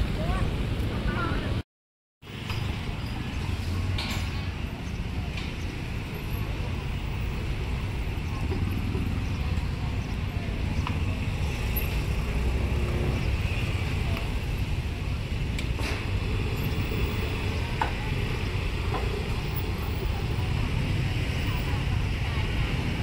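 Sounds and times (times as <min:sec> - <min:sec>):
traffic rumble: 0:00.0 - 0:01.6, 0:02.2 - 0:23.0.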